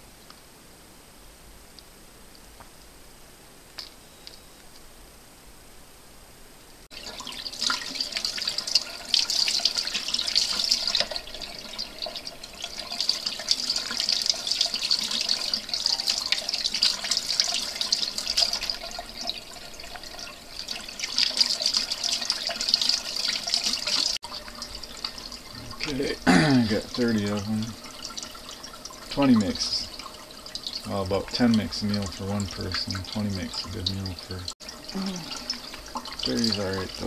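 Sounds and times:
faucet water splashing into sink: 6.9s - 37.0s.

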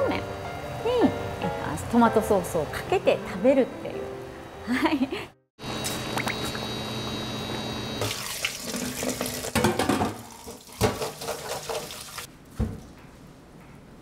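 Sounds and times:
hand rinsing noodles splashing: 8.0s - 9.6s, 10.2s - 12.3s
water running from tap: 8.0s - 12.3s.

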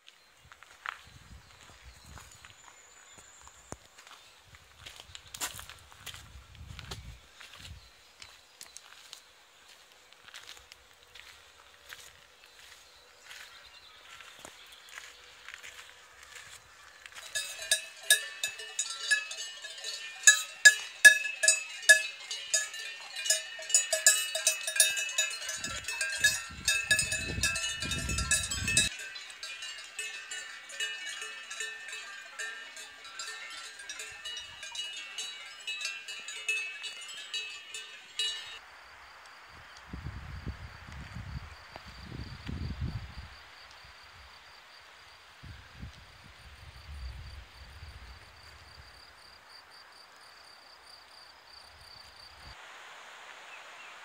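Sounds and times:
cowbells clanking: 17.1s - 38.6s.

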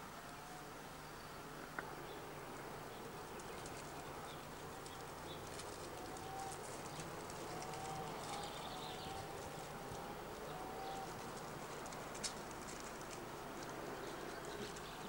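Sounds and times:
light scattered crackle: 3.0s - 15.0s.

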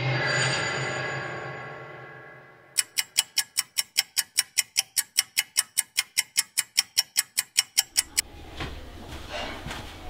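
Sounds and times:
pocket watch ticking: 2.8s - 8.2s.

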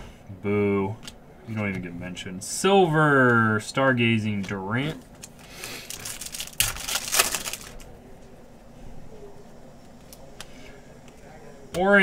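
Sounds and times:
trading cards shuffling: 5.2s - 7.9s.

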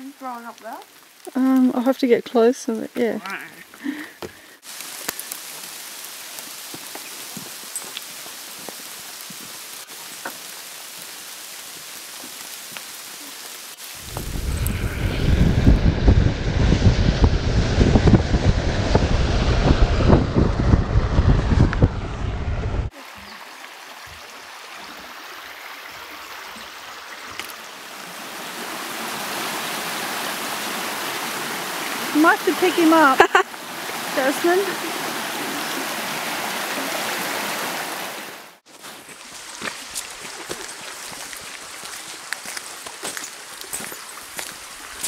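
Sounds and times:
creek burbling over stones: 0.0s - 15.0s, 22.9s - 45.0s
rain on wooden boardwalk: 0.0s - 15.3s, 22.9s - 45.0s
wind buffeting microphone: 14.0s - 22.9s.

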